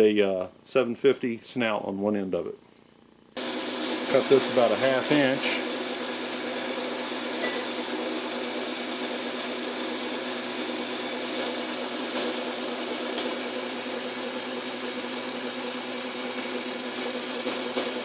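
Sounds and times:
lathe tool cutting metal: 3.4s - 18.0s
motor and gear hum: 3.4s - 18.0s.

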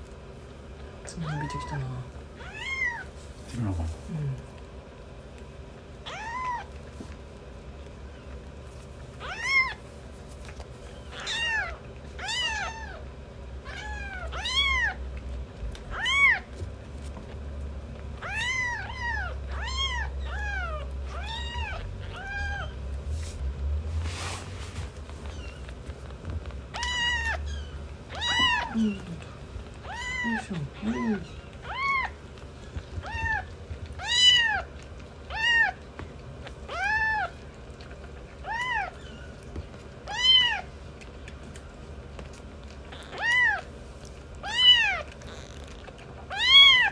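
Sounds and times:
low steady rumble: 0.0s - 46.9s
kitten mewing: 1.2s - 3.1s, 15.9s - 16.5s, 18.2s - 22.8s, 26.7s - 32.2s, 33.0s - 34.7s, 42.8s - 43.7s, 44.4s - 46.9s.

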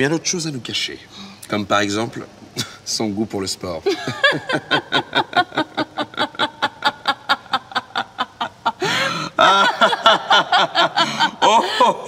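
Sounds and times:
man and woman laughing: 3.9s - 12.0s.

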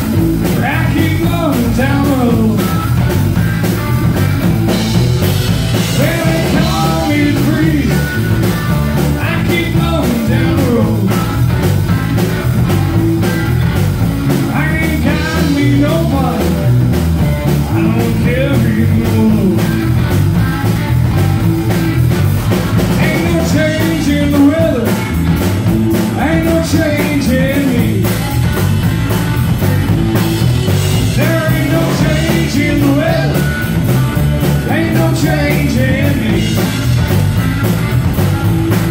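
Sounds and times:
bass guitar: 0.0s - 38.9s
drums: 0.0s - 38.9s
electric guitar: 0.0s - 38.9s
man singing: 0.4s - 3.1s, 5.8s - 11.4s, 14.3s - 19.9s, 22.9s - 28.6s, 31.0s - 37.0s.

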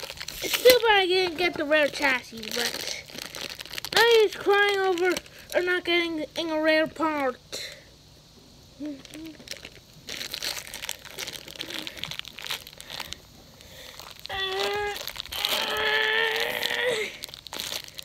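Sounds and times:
plastic packaging crinkling: 0.0s - 7.4s, 8.8s - 18.0s
person making wordless sounds: 14.3s - 17.2s.

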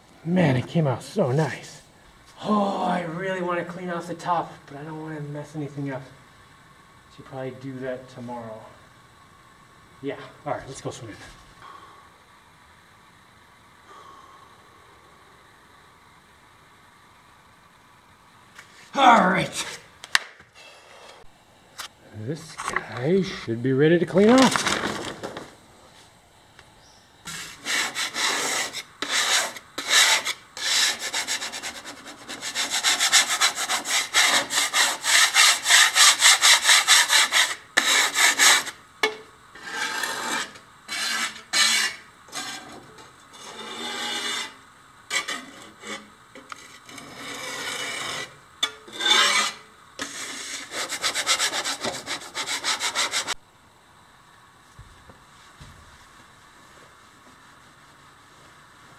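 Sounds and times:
hand scrubbing a tiled countertop: 27.3s - 38.8s, 49.1s - 53.4s.

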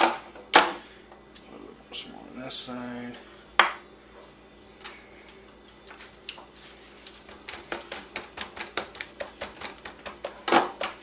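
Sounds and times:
foil crinkling: 5.7s - 11.0s
hands patting meat: 6.0s - 11.0s.

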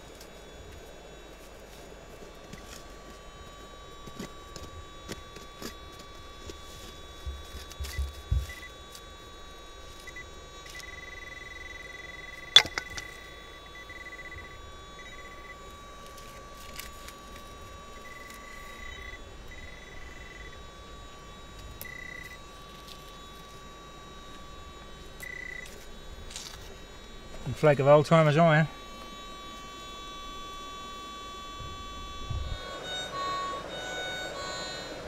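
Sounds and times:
steady high tone: 10.1s - 35.0s.

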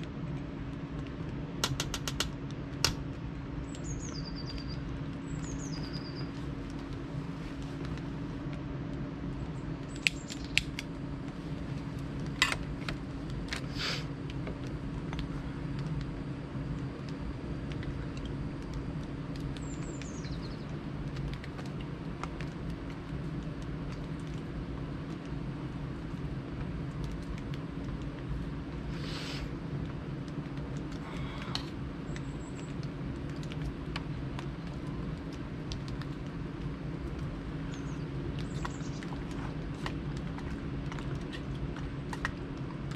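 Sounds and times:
low hum: 0.0s - 42.9s
small bird calling: 3.6s - 6.5s, 19.6s - 20.8s, 31.0s - 32.8s, 37.6s - 39.1s.

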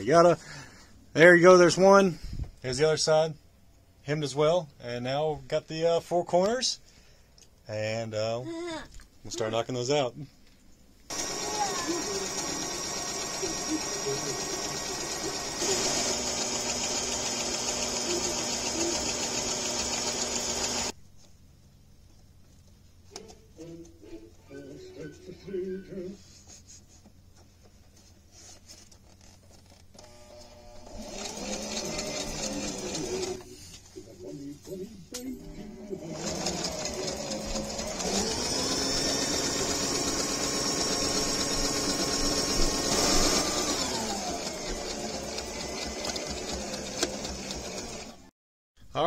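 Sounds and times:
electric sewing machine running: 11.1s - 21.0s, 30.0s - 33.4s, 36.0s - 48.3s.

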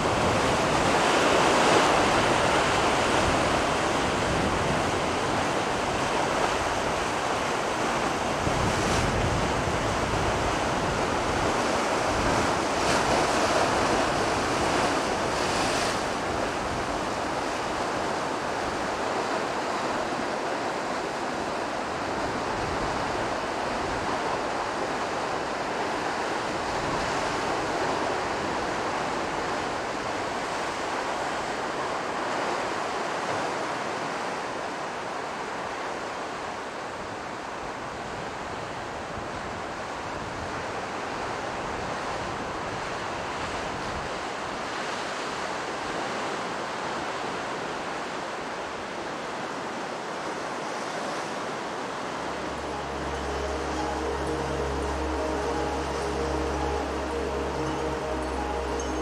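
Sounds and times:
surf washing against rocks: 0.0s - 38.5s.

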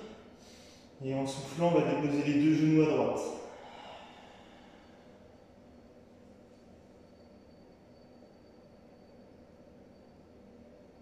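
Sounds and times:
faint steady hum: 0.0s - 11.0s
thin high whine: 0.0s - 11.0s.

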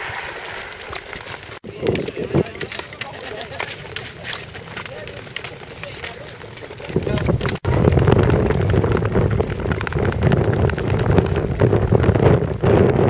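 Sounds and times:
wind rushing over microphone: 0.0s - 2.9s, 6.7s - 13.0s
skate blades gliding over ice: 0.0s - 13.0s.

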